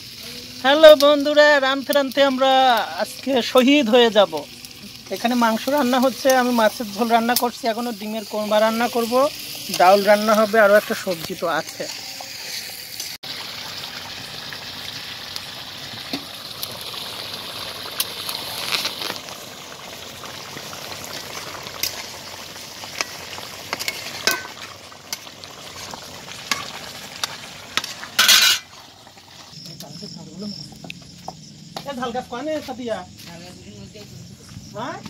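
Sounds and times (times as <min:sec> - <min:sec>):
curry sizzling and bubbling: 0:00.0 - 0:29.7
spatula scraping pan: 0:09.4 - 0:13.2, 0:26.5 - 0:28.7
spatula clinking: 0:23.7 - 0:25.2.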